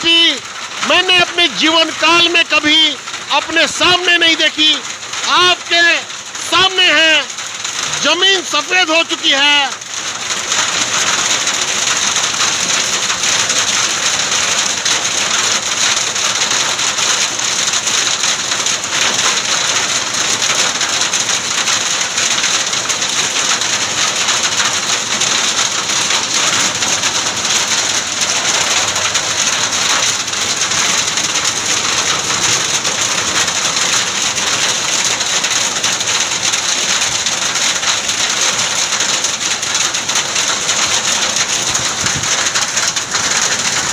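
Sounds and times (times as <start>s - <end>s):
hail and rain pelting a road: 0.0s - 43.9s.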